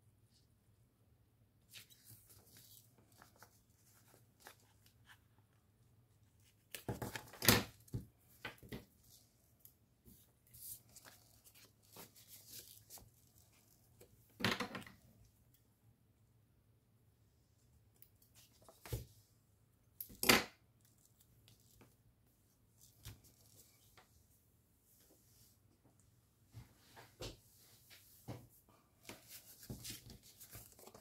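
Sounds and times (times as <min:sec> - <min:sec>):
paper rustling: 0:01.7 - 0:05.2, 0:10.0 - 0:14.1, 0:29.0 - 0:31.0.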